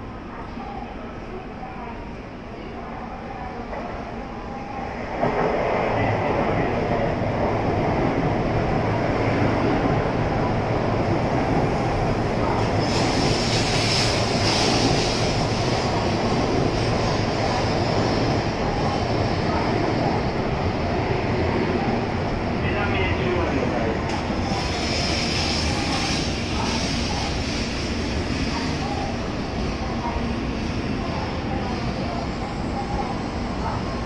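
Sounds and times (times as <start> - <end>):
train wheels rushing: 11.3 - 22.4.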